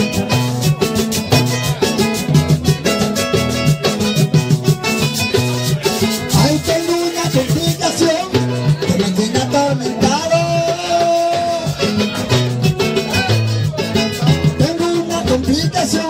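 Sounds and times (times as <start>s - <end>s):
acoustic guitars playing: 0.0s - 16.0s
steady percussion beat: 0.0s - 16.0s.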